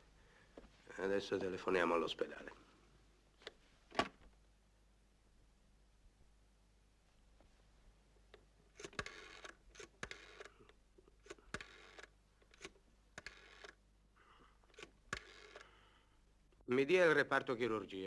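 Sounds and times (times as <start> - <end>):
rattling clicks of dial return: 8.8 - 13.8, 14.7 - 15.7
rotary telephone dial whirring: 8.8 - 13.8, 14.7 - 15.8.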